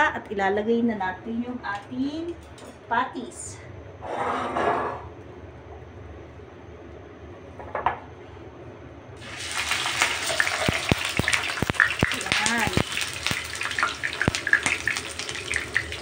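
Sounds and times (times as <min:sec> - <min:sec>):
oil sizzling with crackling pops: 0:09.2 - 0:16.0.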